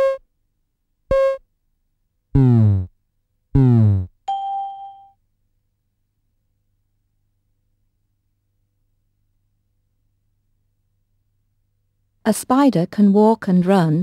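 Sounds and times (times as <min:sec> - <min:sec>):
short electronic beep: 0:00.0 - 0:00.2, 0:01.1 - 0:01.4
electronic ding: 0:04.3 - 0:05.2.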